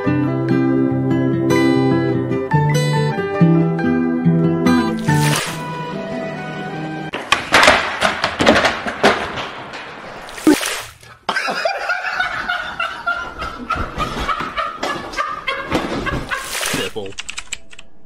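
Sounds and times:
young men laughing: 11.2 - 16.9.

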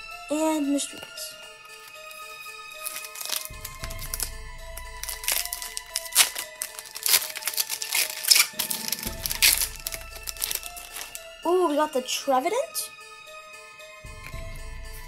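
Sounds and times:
background music: 0.0 - 15.0
foil wrapper crinkling and tearing: 1.7 - 11.3.

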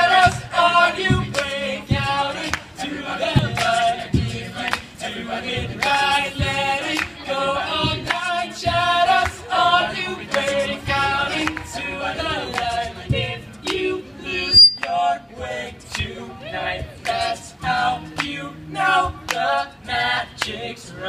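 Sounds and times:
male group singing in harmony: 0.0 - 21.0
high beep: 14.4 - 14.9.

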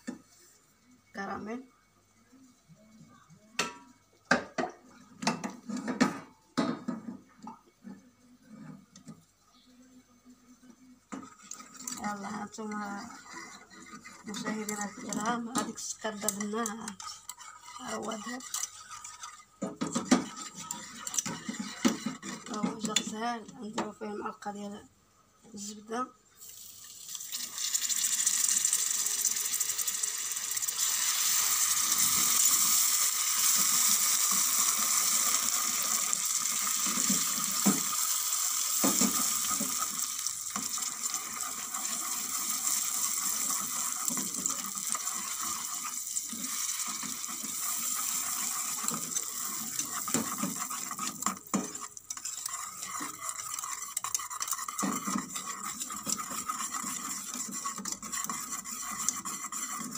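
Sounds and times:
caramel sizzling: 11.1 - 22.5, 26.3 - 59.9
whisk scraping saucepan: 11.1 - 23.2, 28.6 - 59.9.

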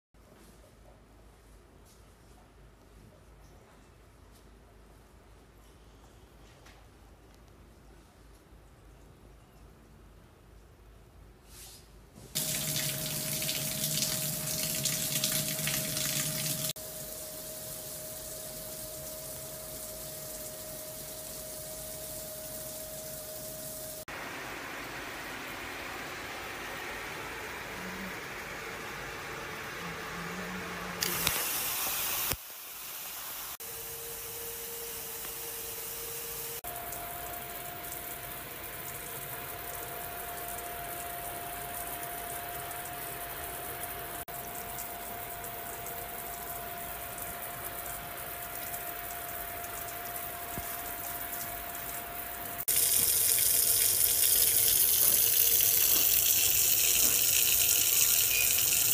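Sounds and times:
waterfall spout pouring: 12.4 - 27.6, 35.4 - 58.9
faint steady whine: 12.4 - 58.9
shower jets spraying water: 12.4 - 58.9.

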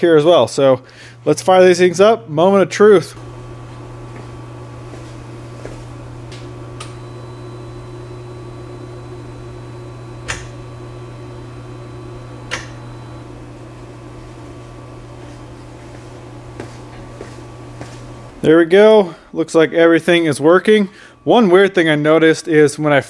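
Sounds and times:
steady low hum: 0.0 - 23.0
sharp switch clicks: 10.2 - 10.6, 12.5 - 12.8.

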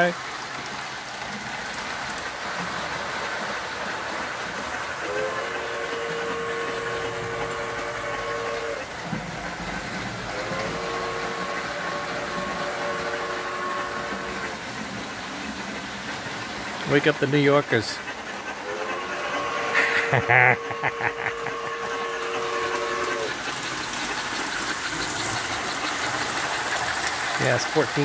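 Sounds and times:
model train running on track: 0.0 - 28.0
model train whistle blowing: 5.0 - 8.9, 10.3 - 14.5, 18.6 - 23.4.

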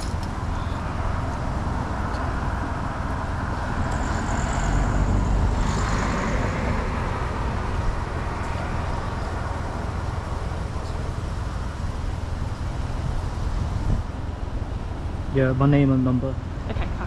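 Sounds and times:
rumble of passing cars: 0.0 - 17.0
loud vehicle passing: 0.9 - 11.2.

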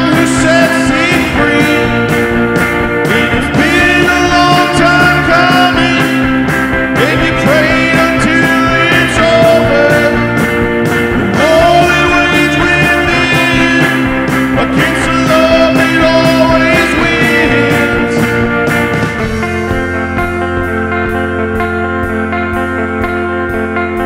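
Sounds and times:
man singing: 0.0 - 18.9
electric guitar chords: 0.0 - 24.0.

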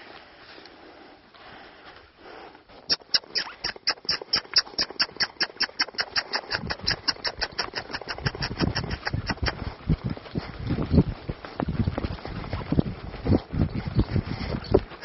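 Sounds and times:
sharp squeaky clicks: 2.9 - 9.6.

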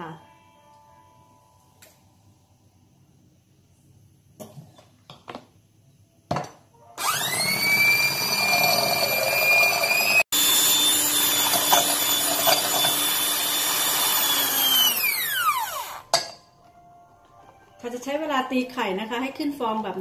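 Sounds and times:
hand mixer motor whining: 7.0 - 16.1.

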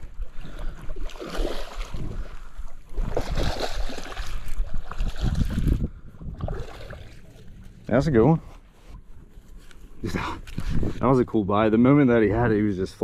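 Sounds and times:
fish thrashing and splashing: 0.3 - 7.7
wind noise on microphone: 4.5 - 7.1, 10.5 - 11.2.

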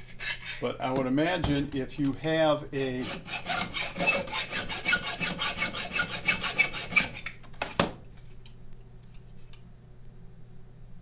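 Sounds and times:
hand file rasping on metal: 0.0 - 0.8, 2.8 - 7.2.

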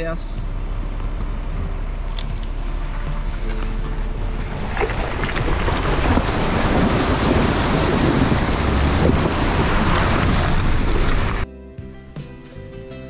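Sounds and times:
water splashing off vehicle wheel: 2.3 - 11.4
wind buffeting microphone: 3.3 - 11.4.

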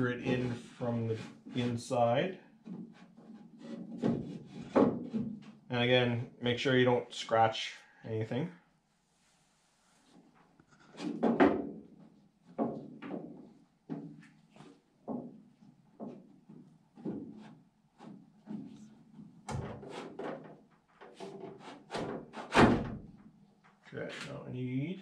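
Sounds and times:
metal knocks and clunks: 18.5 - 23.1.

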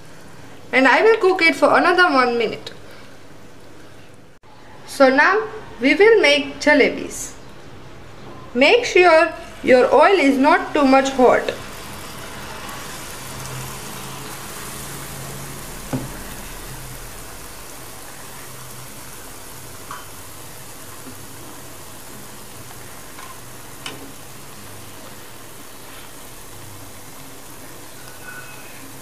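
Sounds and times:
batter sizzling in hot oil: 9.4 - 29.0.

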